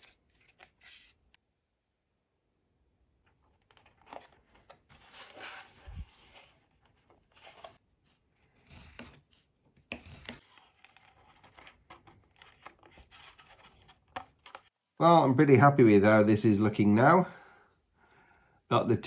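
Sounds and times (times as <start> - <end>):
hands rubbing and rustling wood: 3.7 - 14.7.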